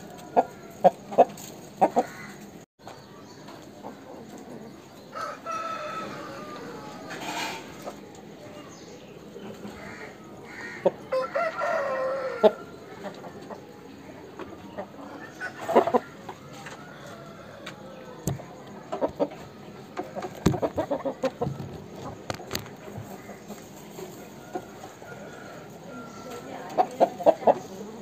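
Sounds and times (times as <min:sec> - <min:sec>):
roosters crowing: 0:00.0 - 0:02.6, 0:05.0 - 0:08.0, 0:09.6 - 0:13.4, 0:15.0 - 0:18.6, 0:20.1 - 0:27.6
soft clucking: 0:00.0 - 0:02.6, 0:12.4 - 0:25.2.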